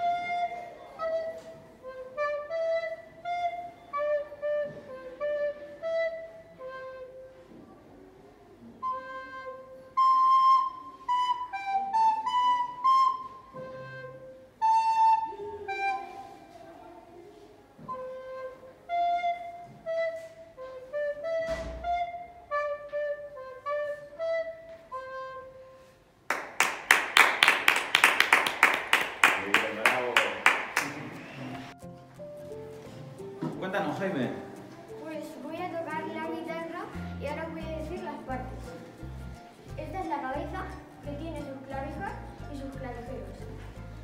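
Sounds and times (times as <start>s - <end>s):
flute solo melody: 0.0s - 7.5s, 8.8s - 16.7s, 17.8s - 26.0s
quick loud clapping: 26.3s - 31.3s.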